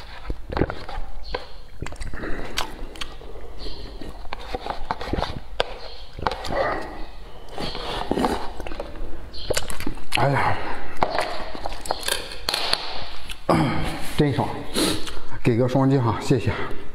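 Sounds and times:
slurping and chewing noodles: 0.0 - 12.5.

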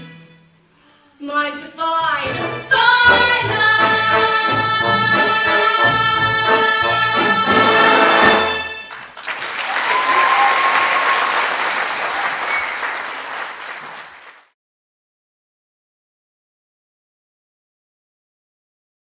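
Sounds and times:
orchestral music: 2.1 - 9.0
audience applause: 8.9 - 14.5.

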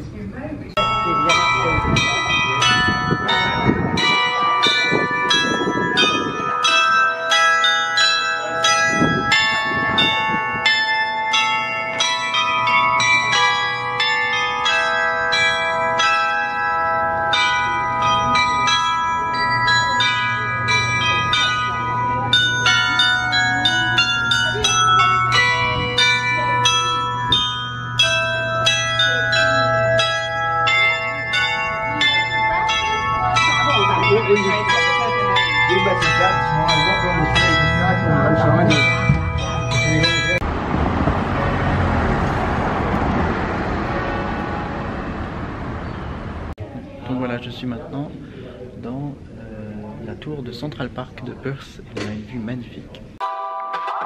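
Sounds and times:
tuned bells ringing: 0.8 - 40.5.

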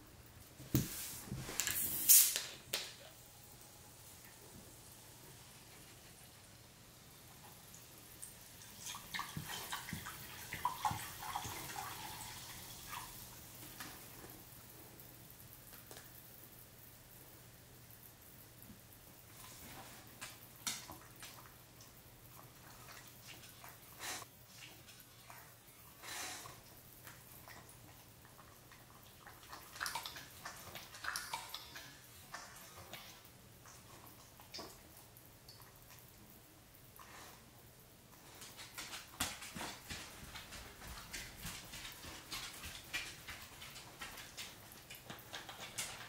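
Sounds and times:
dog lapping water: 8.5 - 13.1, 26.2 - 35.0.

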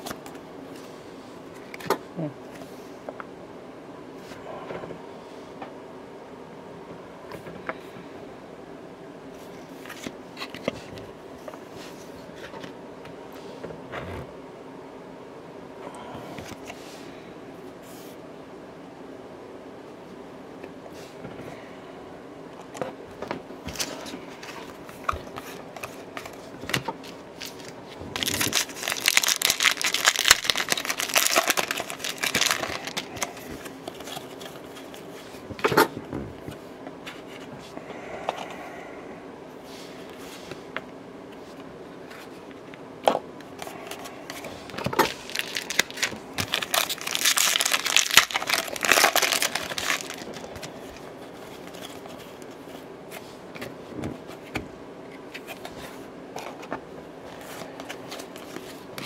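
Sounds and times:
wrappers tearing and crinkling: 27.4 - 34.9, 44.7 - 51.0.

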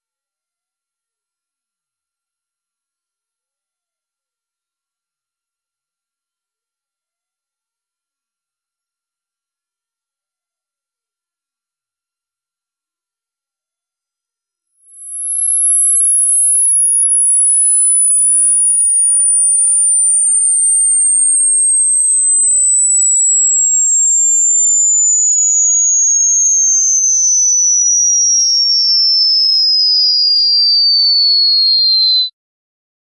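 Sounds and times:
sine tone sweeping down: 14.8 - 32.3.

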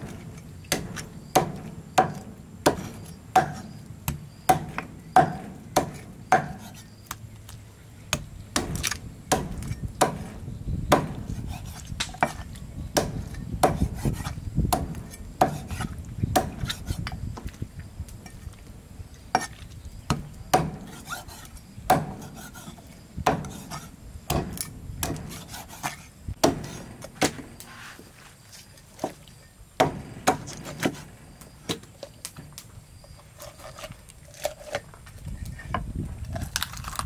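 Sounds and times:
cleaver chopping on wood: 0.0 - 6.8, 8.1 - 12.4, 13.0 - 17.1, 20.1 - 27.6, 29.8 - 31.1
blade scraping on wood: 4.5 - 7.2, 11.1 - 12.6, 13.2 - 17.2, 20.6 - 29.2, 33.0 - 37.0.

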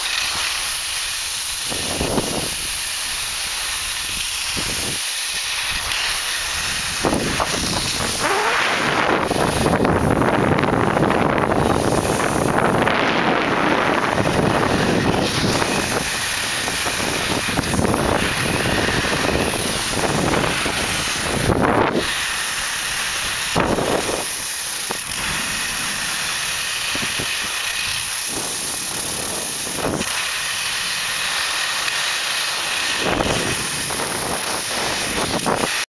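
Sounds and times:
skis sliding through snow: 0.0 - 35.8
wind on microphone: 1.5 - 2.8, 4.0 - 5.0, 5.6 - 31.2, 32.7 - 35.8.

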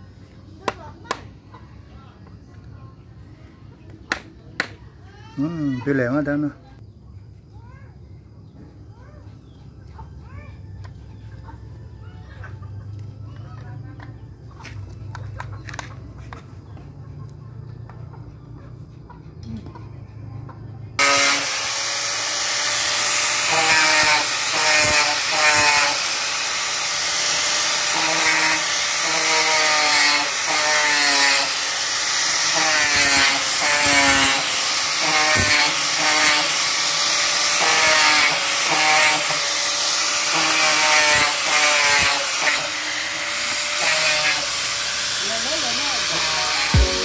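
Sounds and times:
angle grinder grinding wood: 21.0 - 47.0.

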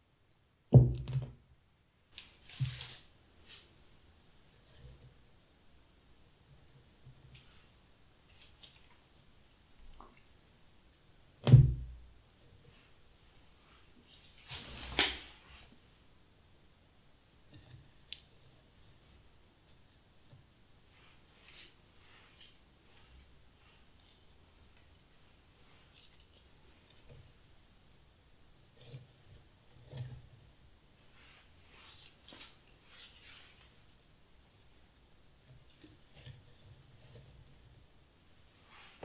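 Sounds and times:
dried grass stems rustling: 2.2 - 3.6.

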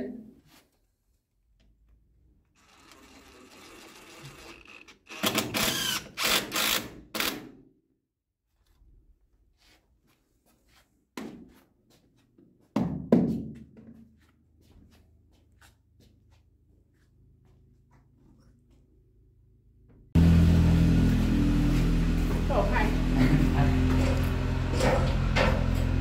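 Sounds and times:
cordless drill driving screws: 2.6 - 7.5.

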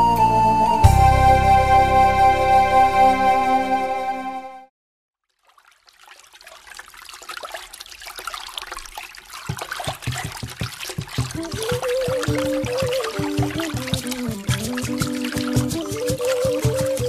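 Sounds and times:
melody: 0.0 - 4.7
trickling running water: 5.2 - 17.0
low drum beat: 10.0 - 17.0.

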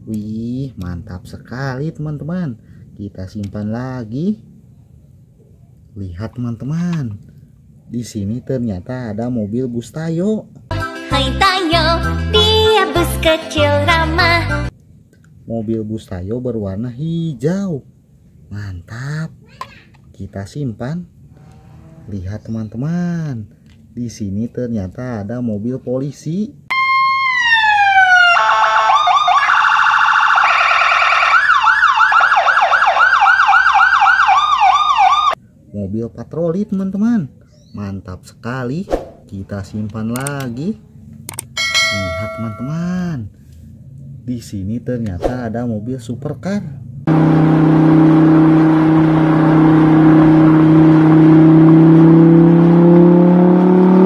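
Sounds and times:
toy police siren: 26.7 - 35.4.

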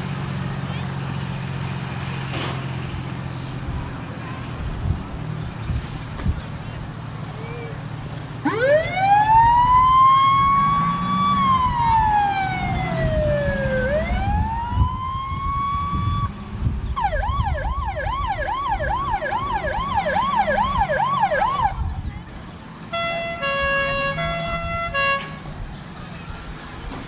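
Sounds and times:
engine running low: 0.0 - 27.0
fire engine siren: 8.4 - 21.9, 22.9 - 25.4.

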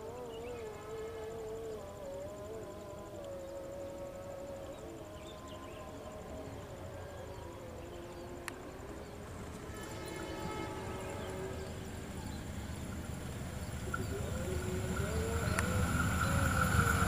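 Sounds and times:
faint drawn-out tones: 0.0 - 17.0
diesel train engine rumble: 5.8 - 17.0
click: 8.1 - 8.6, 15.5 - 15.7.

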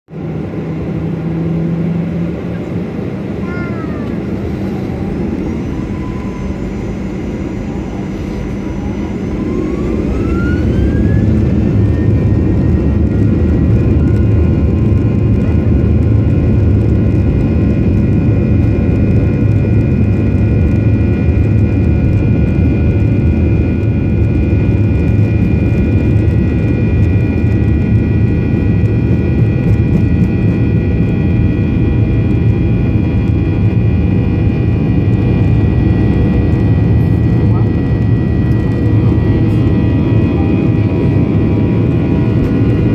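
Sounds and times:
rising engine whine: 0.1 - 42.9
jet engines spooling up: 0.2 - 42.9.

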